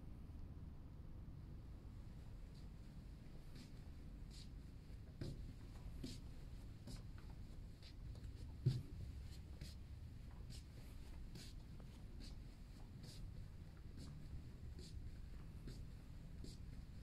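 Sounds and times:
footsteps on carpet: 5.2s - 16.7s.

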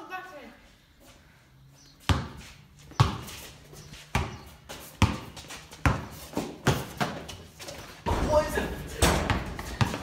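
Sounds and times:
basketball bouncing on hard floor: 5.0s - 7.3s, 9.0s - 10.0s.

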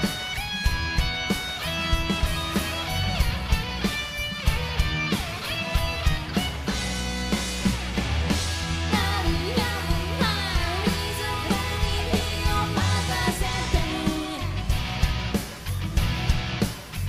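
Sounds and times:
rock band playing: 0.0s - 17.0s
woman singing: 8.9s - 14.8s.

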